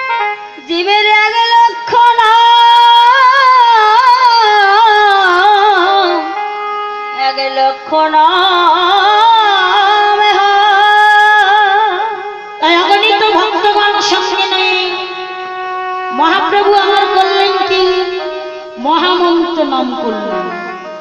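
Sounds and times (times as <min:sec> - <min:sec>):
woman singing devotional melody: 0:00.0 - 0:21.0
sustained instrumental tones: 0:11.9 - 0:21.0.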